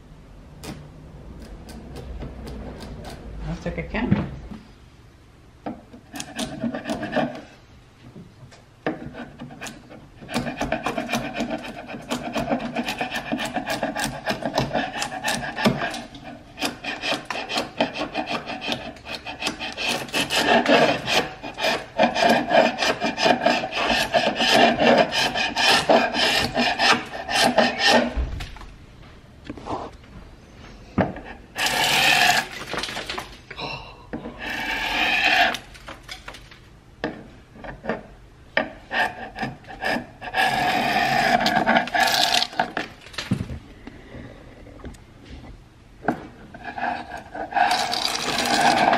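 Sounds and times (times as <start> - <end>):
chisel scraping paint off wood: 5.7 - 7.5, 8.9 - 28.2, 31.0 - 32.7, 37.1 - 42.9, 46.6 - 48.9.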